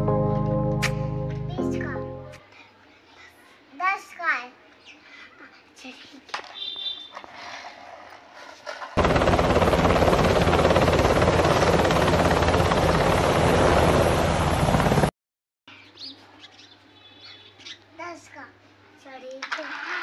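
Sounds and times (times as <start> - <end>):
helicopter noise: 9.0 - 15.1.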